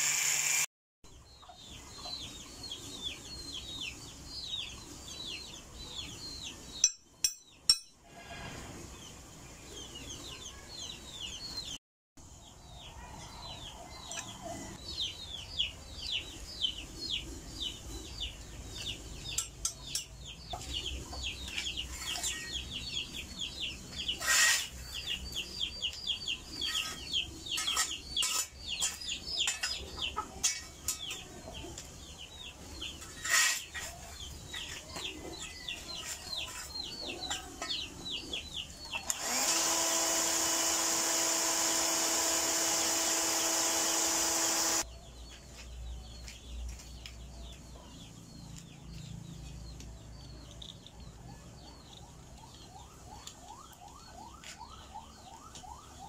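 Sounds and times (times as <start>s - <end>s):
chickens peeping: 13.3s - 39.1s.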